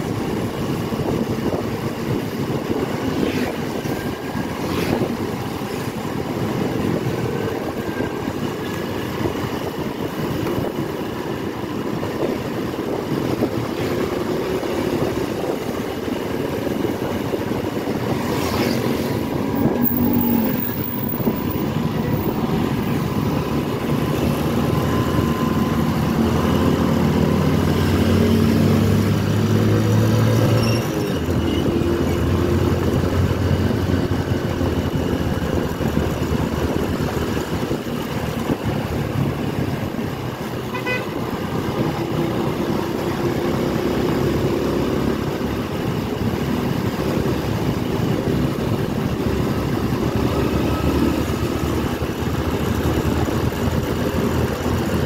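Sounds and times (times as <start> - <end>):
motorcycle engine running: 0.0 - 29.9, 41.6 - 55.0
wind and road noise: 0.0 - 55.0
horn toot: 40.7 - 41.2.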